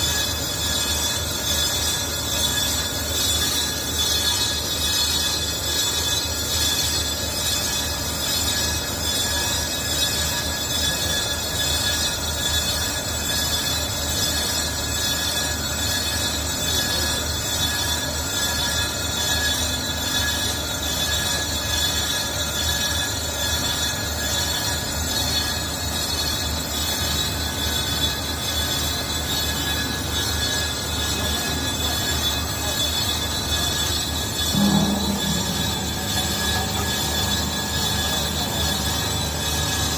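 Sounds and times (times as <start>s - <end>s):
lathe cutting tool squealing: 0.0s - 39.9s
lathe machine humming: 32.6s - 39.9s.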